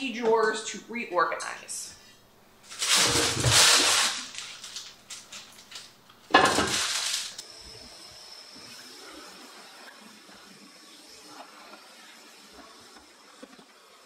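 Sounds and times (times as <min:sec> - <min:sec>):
things rattling in wooden drawer: 0:02.8 - 0:04.8.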